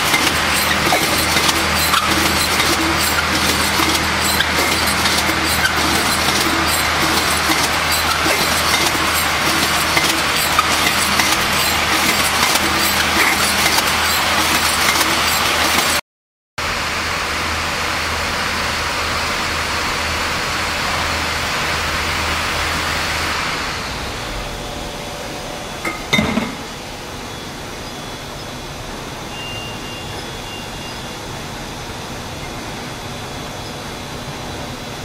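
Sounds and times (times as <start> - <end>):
factory machinery din: 0.0 - 16.0, 16.6 - 35.0.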